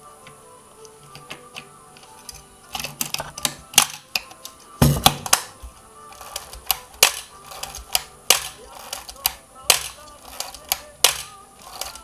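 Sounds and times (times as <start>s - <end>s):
faint music: 0.0s - 12.0s
camera shutter clicks: 6.2s - 12.0s.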